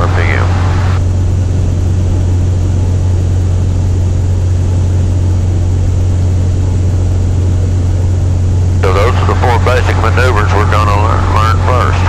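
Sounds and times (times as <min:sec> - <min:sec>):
propeller plane engine drone: 0:00.0 - 0:12.0.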